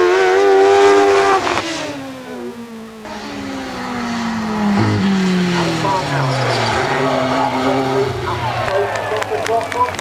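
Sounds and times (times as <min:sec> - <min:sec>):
racing car engine passing: 0:00.0 - 0:09.4.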